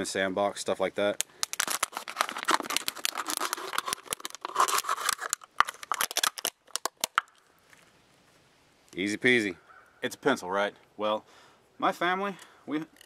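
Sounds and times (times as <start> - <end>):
plastic bottle crackling: 1.2 - 7.5
knife sawing plastic: 1.9 - 5.4.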